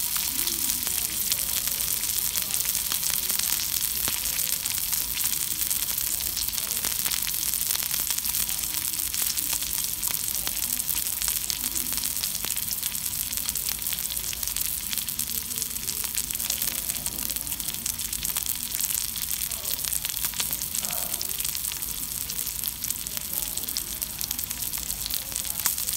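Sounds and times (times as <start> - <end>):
beef sizzling on a griddle: 0.0 - 25.9
spattering crackles: 0.0 - 25.9.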